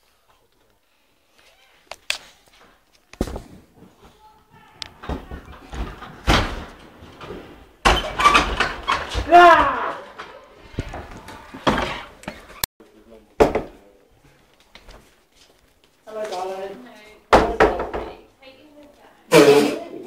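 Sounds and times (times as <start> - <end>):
doors knocking and thudding: 4.8 - 12.6, 13.4 - 13.8, 17.3 - 18.2
wooden doors slamming: 4.9 - 12.5, 17.3 - 18.2.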